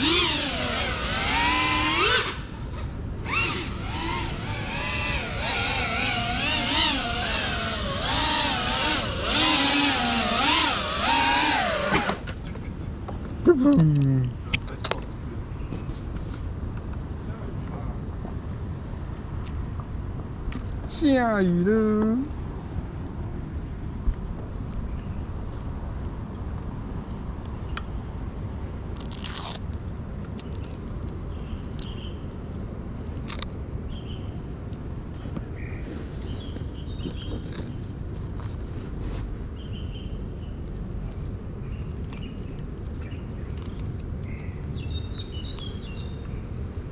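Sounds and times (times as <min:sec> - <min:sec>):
drone motors whining: 0:00.0 - 0:12.3
scraping rustle: 0:35.2 - 0:39.5.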